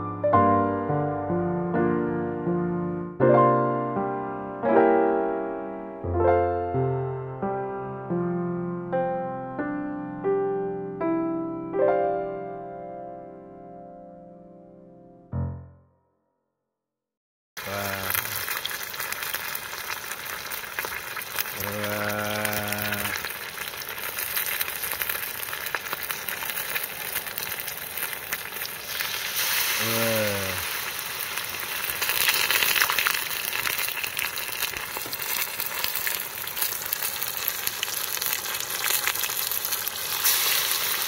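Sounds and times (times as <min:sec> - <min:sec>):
food deep-frying in oil: 0:17.6 - 0:41.0.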